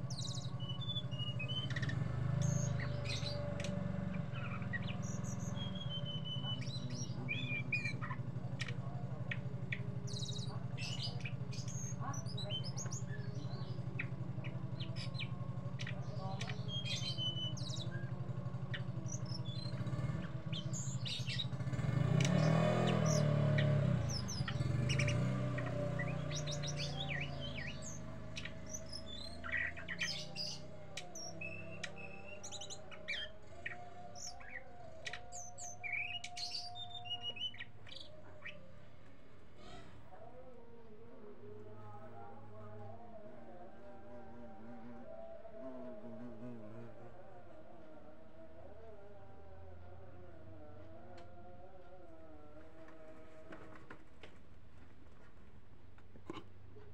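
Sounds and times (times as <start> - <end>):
bird chirping and twittering: 0.0 - 38.9.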